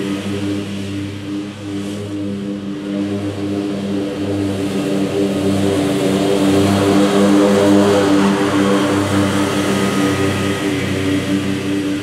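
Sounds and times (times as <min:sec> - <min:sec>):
lawn mower engine pulsing: 0:04.8 - 0:12.0.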